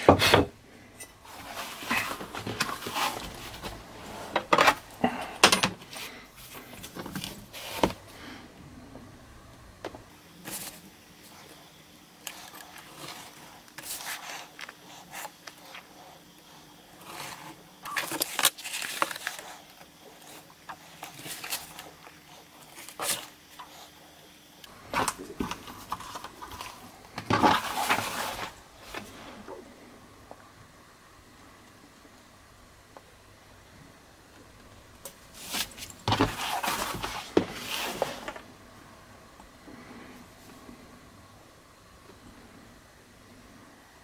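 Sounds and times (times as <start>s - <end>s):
rustling: 1.2s - 5.0s, 24.7s - 29.8s, 35.1s - 38.5s.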